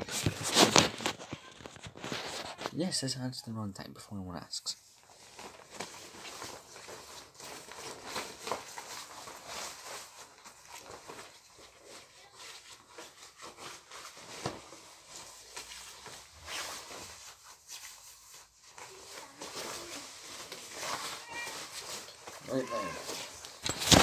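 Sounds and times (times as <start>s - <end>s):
rustling and shuffling: 0.0s - 3.2s, 4.4s - 24.0s.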